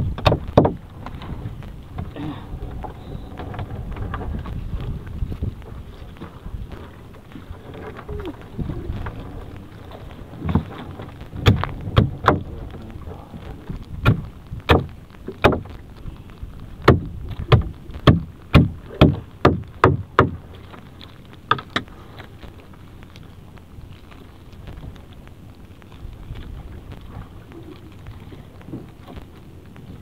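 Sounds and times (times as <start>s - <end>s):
wind and sea rumble: 0.0s - 30.0s
net knocking against boat: 0.2s - 0.8s, 11.4s - 12.6s, 14.0s - 15.7s, 16.8s - 20.4s.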